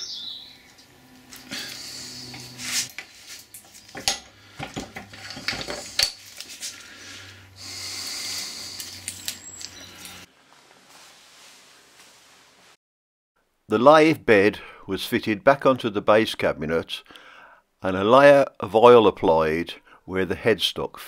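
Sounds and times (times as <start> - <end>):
metal parts rubbing: 2.2 - 6.8
metal clinks and knocks: 3.6 - 6.3.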